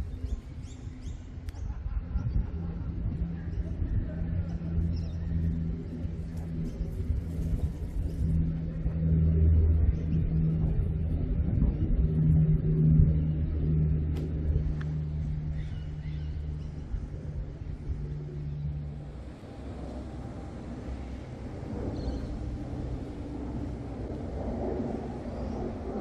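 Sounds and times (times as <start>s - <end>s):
engine droning: 0.0s - 26.0s.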